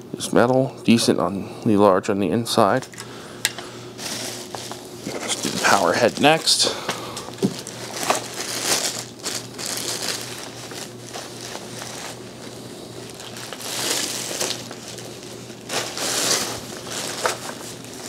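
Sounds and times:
plastic bag crinkling: 4.0 - 18.0.

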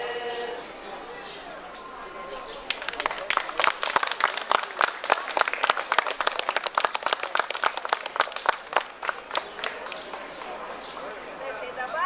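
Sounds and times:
small crowd applauding: 2.5 - 11.2.

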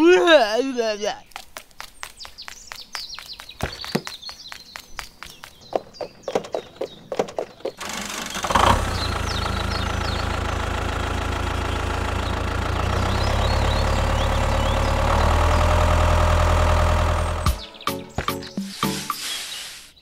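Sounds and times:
birds chirping: 0.0 - 20.0
sharp clicks: 1.3 - 8.7
tractor engine starting and idling: 6.6 - 17.8.

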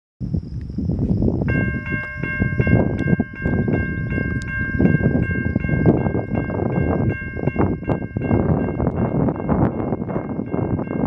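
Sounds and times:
loud low rumbling: 1.0 - 11.0
railroad crossing bell ringing: 1.5 - 11.0.

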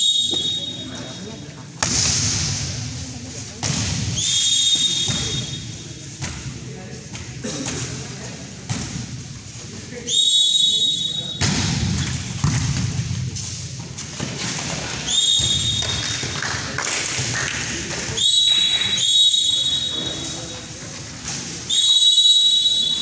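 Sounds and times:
referee's whistle blasts: 0.0 - 1.3, 4.1 - 5.8, 10.1 - 11.5, 15.1 - 16.3, 18.2 - 20.4, 21.7 - 23.0
voices in a large hall: 0.0 - 23.0.

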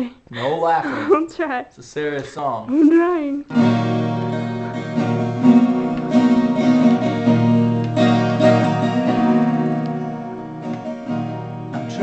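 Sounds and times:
acoustic guitar strumming: 3.5 - 12.0.

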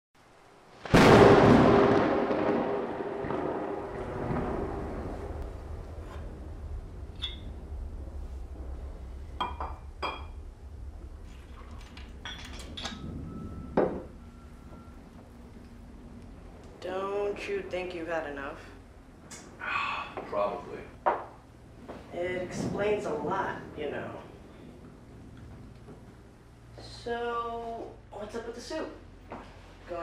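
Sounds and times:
deep boom: 0.8 - 17.2
glass clinking: 7.2 - 7.5, 9.4 - 10.4, 11.6 - 14.9
heavy glass knock: 9.4 - 10.4.

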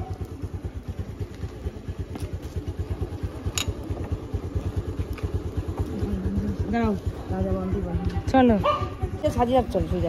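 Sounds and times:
scooter engine putter: 0.0 - 7.4.

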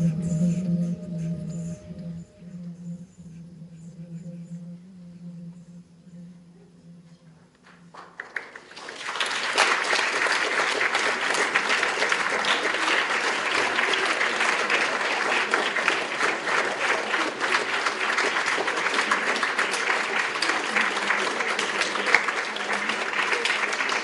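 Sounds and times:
audience applauding: 7.9 - 24.0.

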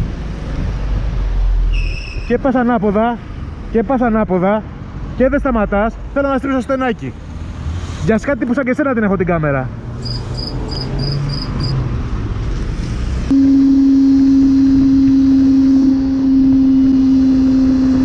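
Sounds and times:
low hum of traffic engines: 0.0 - 18.0
motorcycle engine drone: 13.2 - 18.0.

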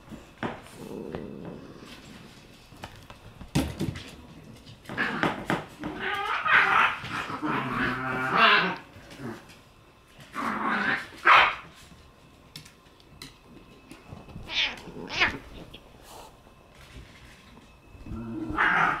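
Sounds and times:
cat growling and yowling: 5.8 - 8.8, 14.4 - 15.8, 18.2 - 19.0.

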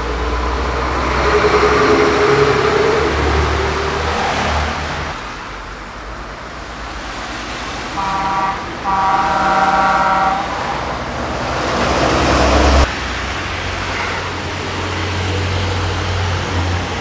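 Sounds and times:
vehicle passing: 0.0 - 5.6, 6.8 - 17.0
low rumble of motorway traffic: 0.0 - 17.0
car horn: 8.0 - 11.1.

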